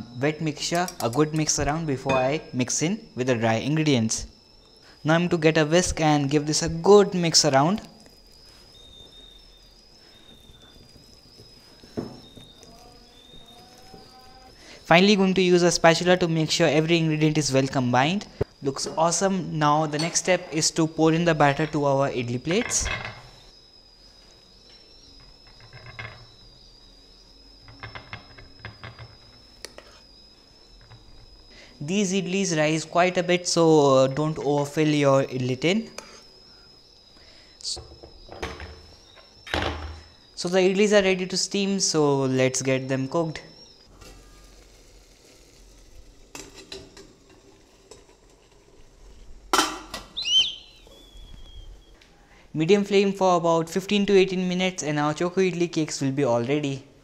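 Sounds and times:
faint steady high whine: 0:00.0 - 0:57.0
lid scraping squeal: 0:50.0 - 0:52.0.

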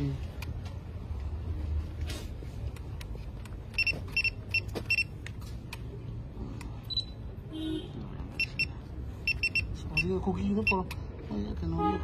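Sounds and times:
short high beeps: 0:08.4 - 0:10.8.

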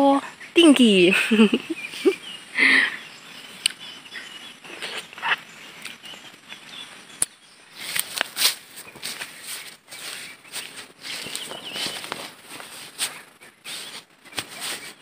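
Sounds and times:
birds: 0:00.0 - 0:15.0
flip-flop footsteps on dirt: 0:07.8 - 0:15.0.

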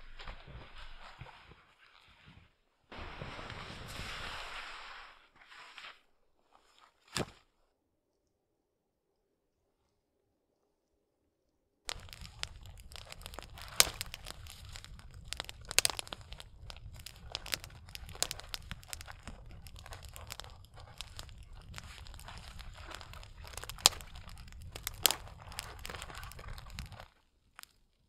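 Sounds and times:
sharp snaps: 0:11.9 - 0:27.8
kindling crackling: 0:11.9 - 0:28.0.

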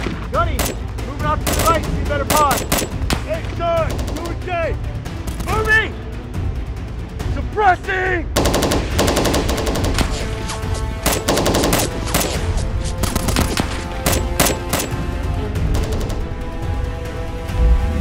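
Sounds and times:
single gunshots: 0:00.0 - 0:00.8, 0:01.4 - 0:04.2, 0:08.4 - 0:15.1
background music: 0:00.0 - 0:18.0
automatic gunfire: 0:00.6 - 0:00.8, 0:01.4 - 0:03.3, 0:08.4 - 0:10.4, 0:11.0 - 0:15.1, 0:15.7 - 0:16.3.

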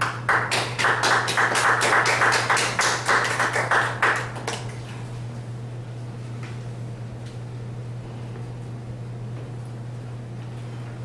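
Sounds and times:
small audience clapping: 0:00.0 - 0:04.8.

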